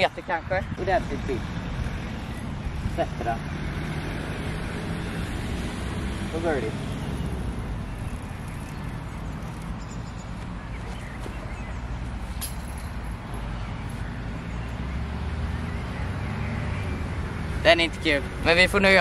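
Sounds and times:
wind buffeting microphone: 0.0 - 3.3.

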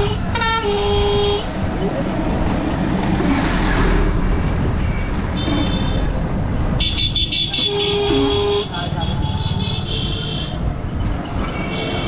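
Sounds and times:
road traffic rumble: 0.0 - 12.0
vehicle horn toots: 6.8 - 10.6.

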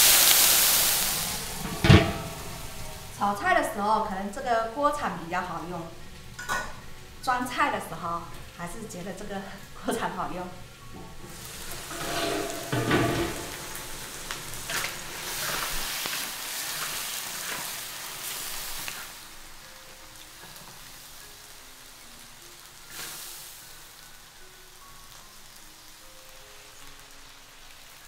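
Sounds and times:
vegetables sizzling in a wok: 0.0 - 28.0
soft background music: 0.1 - 28.0
spatula striking pan: 1.6 - 2.6, 11.0 - 15.7.

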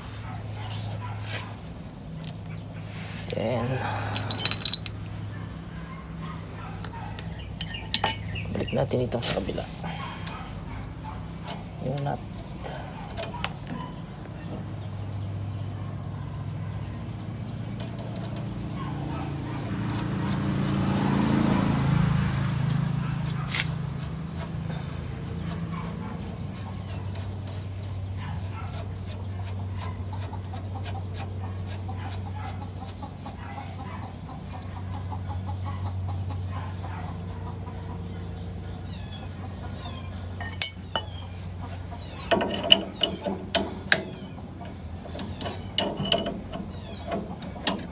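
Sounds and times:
metal tool clicks: 4.2 - 5.1, 7.6 - 8.4, 40.4 - 41.5.

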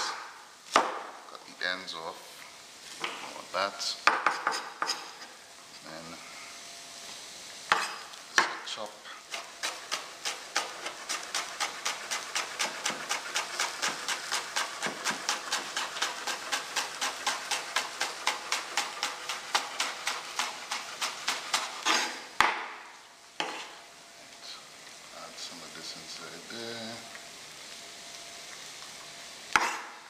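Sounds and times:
knife chopping herbs on board: 9.3 - 22.7, 23.4 - 23.7, 29.6 - 29.9.

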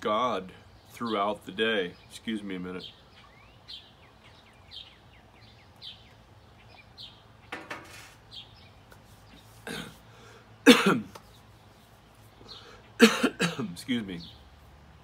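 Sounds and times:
small birds chirping faintly: 0.0 - 15.0
man coughing: 9.6 - 10.0, 10.6 - 11.1, 13.0 - 13.8.

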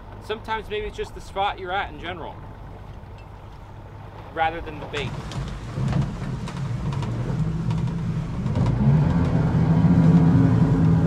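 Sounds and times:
outboard motor running: 5.0 - 11.0.

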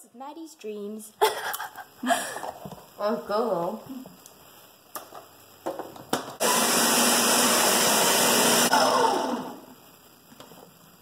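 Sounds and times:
blender motor blending ice: 6.4 - 9.7.

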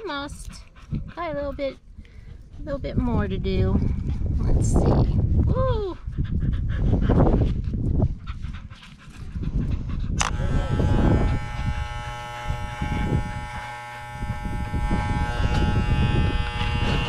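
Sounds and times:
dog panting: 0.0 - 10.4
electric clippers buzzing: 10.2 - 17.0.

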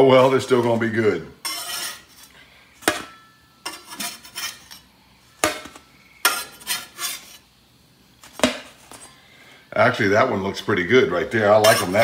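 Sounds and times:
metal spatula scraping stone: 1.4 - 7.5, 11.5 - 12.0
spatula clinking on metal pan: 2.9 - 4.2, 5.4 - 6.8, 11.6 - 12.0.

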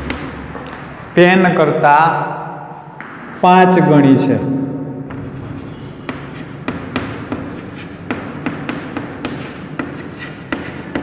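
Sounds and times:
chalk tapping and scratching: 0.0 - 1.2, 5.1 - 11.0.

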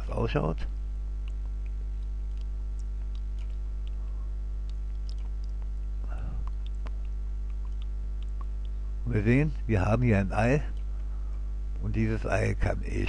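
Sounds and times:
mains hum: 0.0 - 13.0
low murmur or breath: 6.0 - 6.5.

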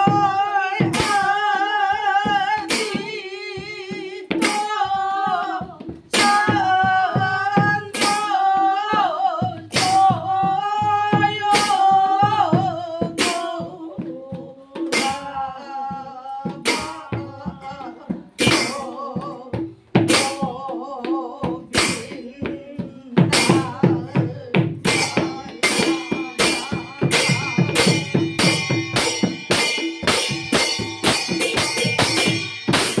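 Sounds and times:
group devotional singing: 0.0 - 19.6, 20.2 - 29.9
small hand cymbals clashing: 24.9 - 33.0.

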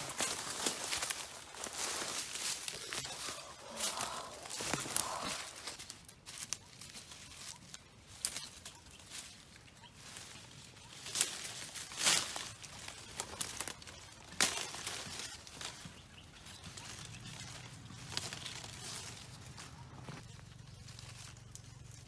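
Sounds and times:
dry leaves crunching and rustling: 0.0 - 22.0
twigs crackling: 0.0 - 22.0.

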